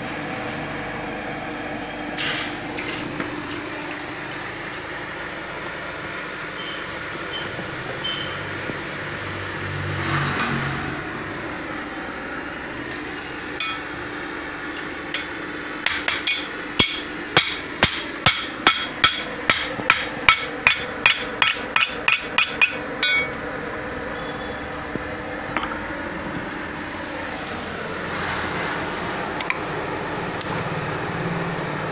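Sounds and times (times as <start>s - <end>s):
hammer striking machete blade: 13.6s - 13.9s, 15.9s - 23.4s.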